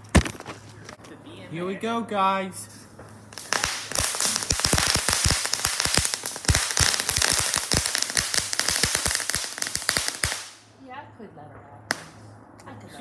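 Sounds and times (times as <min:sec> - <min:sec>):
sharp crackling pops: 0:03.0 - 0:10.8, 0:11.9 - 0:12.3
firework hissing: 0:03.2 - 0:10.7.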